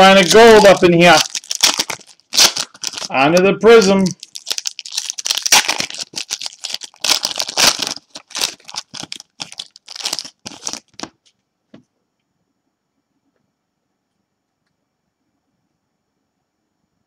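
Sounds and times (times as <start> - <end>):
foil wrappers crinkling and tearing: 0.0 - 11.2.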